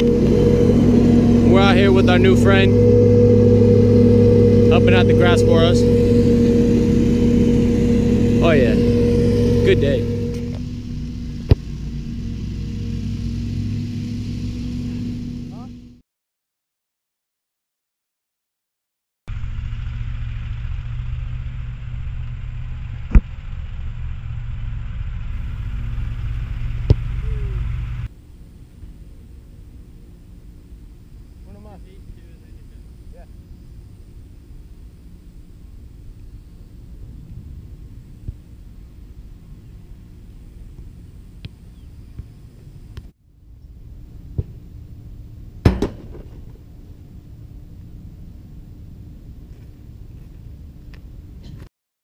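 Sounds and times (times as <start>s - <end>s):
mowing machine engine humming: 0.0s - 15.8s
ball kicked with a thump: 26.9s - 27.2s
soccer ball kicked thuds: 44.3s - 44.6s
ball striking metal goal frame: 45.6s - 46.5s.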